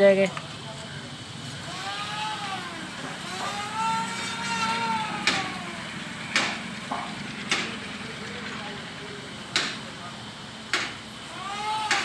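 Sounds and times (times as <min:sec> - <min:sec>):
sharp knocks: 0:05.2 - 0:05.6, 0:06.3 - 0:07.8, 0:09.5 - 0:09.8, 0:10.7 - 0:11.0.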